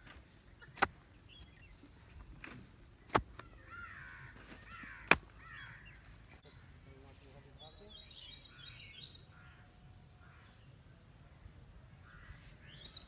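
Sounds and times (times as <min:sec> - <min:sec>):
birds calling: 0:00.0 - 0:11.0, 0:11.9 - 0:13.0
stone pounding wooden stake: 0:02.4 - 0:03.5, 0:04.9 - 0:05.4.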